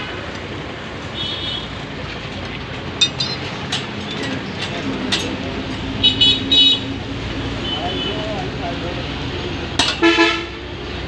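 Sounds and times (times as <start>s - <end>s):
street traffic noise: 0.0s - 11.0s
sharp clicks and knocks: 3.0s - 5.9s.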